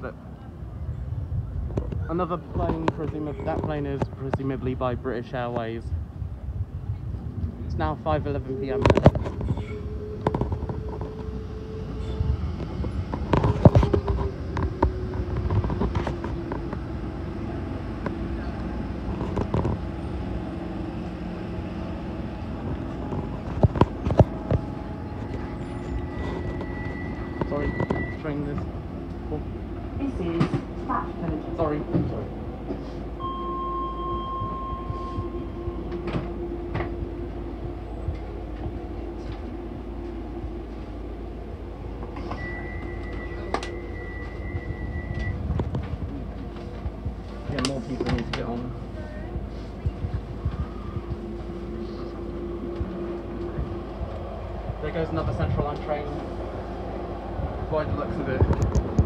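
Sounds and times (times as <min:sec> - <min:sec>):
train electric hum: 0:00.0 - 0:59.0
high electronic beep: 0:33.2 - 0:36.0, 0:42.3 - 0:45.4
high-pitched tone: 0:33.2 - 0:39.7, 0:42.1 - 0:45.6.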